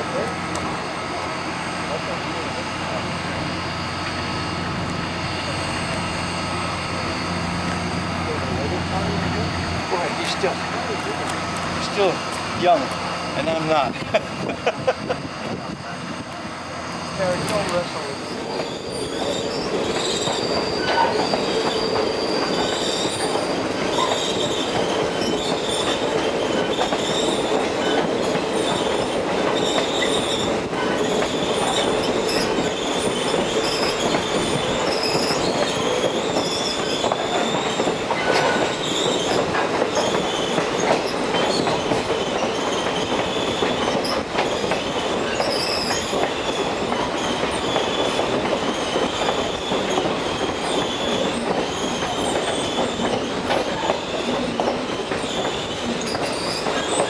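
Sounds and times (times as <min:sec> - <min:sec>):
train wheels rumbling on rails: 0:00.0 - 0:57.0
wheel flanges squealing: 0:15.1 - 0:57.0.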